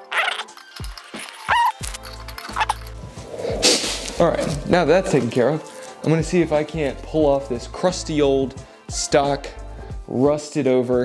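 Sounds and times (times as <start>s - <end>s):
deep bass: 2.6s - 5.4s
sharp drum hits: 3.5s - 4.9s.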